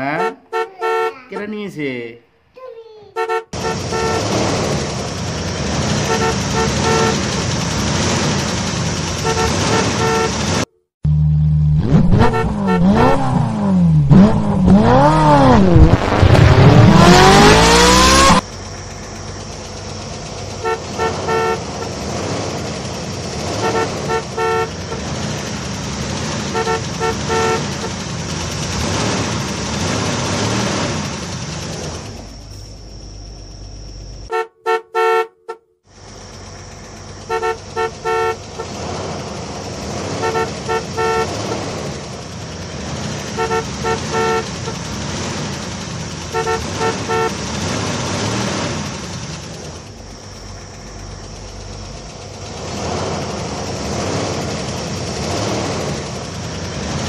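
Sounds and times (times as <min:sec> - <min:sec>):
short car horn beeps: 0:00.0 - 0:01.7, 0:03.2 - 0:04.3, 0:06.0 - 0:07.3, 0:09.2 - 0:10.8, 0:12.1 - 0:13.3, 0:20.6 - 0:22.0, 0:23.6 - 0:25.1, 0:26.5 - 0:28.0, 0:34.3 - 0:35.8, 0:37.2 - 0:38.8, 0:40.2 - 0:41.6, 0:43.3 - 0:44.8, 0:46.3 - 0:47.4
engine-like rumble: 0:03.5 - 0:34.4, 0:35.8 - 0:57.0.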